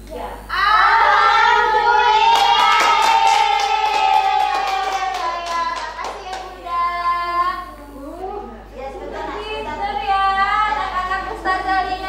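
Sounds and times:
voices singing held note: 0.4s - 8.0s
hand clapping: 2.3s - 6.6s.

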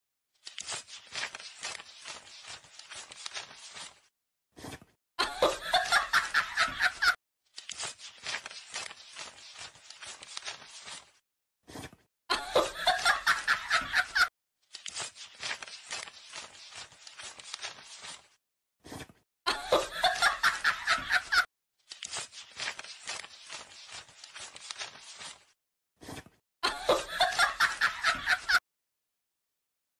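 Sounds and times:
burst of laughter: 5.2s - 7.2s, 12.3s - 14.3s, 19.5s - 21.5s, 26.6s - 28.6s.

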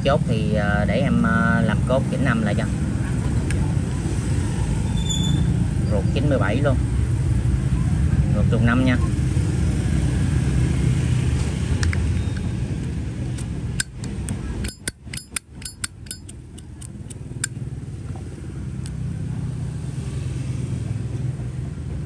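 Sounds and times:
low traffic rumble: 0.0s - 22.0s
lighter lid clicking open and shut: 13.4s - 17.5s.

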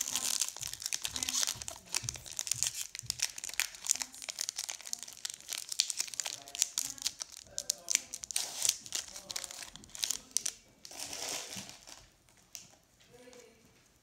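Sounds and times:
foil wrapper crinkling and tearing: 0.0s - 12.6s.

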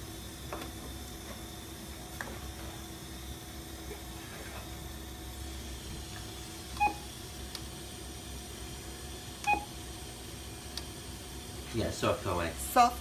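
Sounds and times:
low equipment hum: 0.0s - 13.0s
short electronic beeps: 6.8s - 7.0s.

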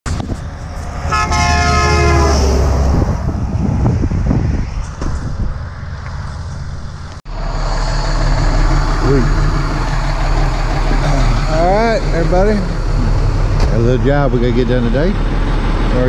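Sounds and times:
truck rumbling past: 0.1s - 16.0s
truck air horn: 1.0s - 3.0s
engine idling: 5.8s - 16.0s.

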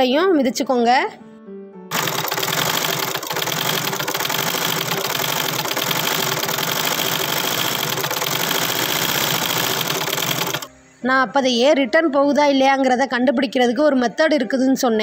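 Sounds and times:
treadle sewing machine clatter: 1.9s - 10.7s.

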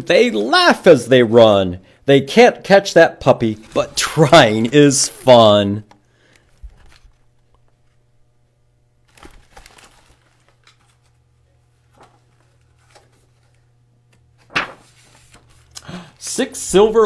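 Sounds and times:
paper pages rustling: 3.4s - 5.6s, 6.3s - 8.0s, 9.0s - 17.0s.

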